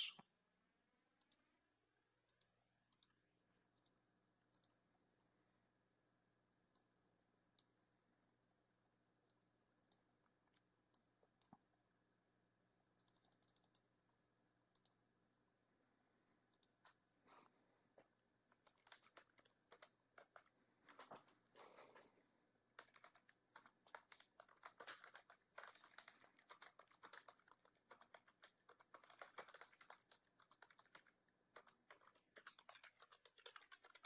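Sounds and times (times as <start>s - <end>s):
mouse and keyboard clicks: 2.2s - 4.8s, 13.0s - 13.9s, 14.7s - 15.0s, 16.4s - 17.0s, 18.5s - 21.5s, 22.7s - 34.0s.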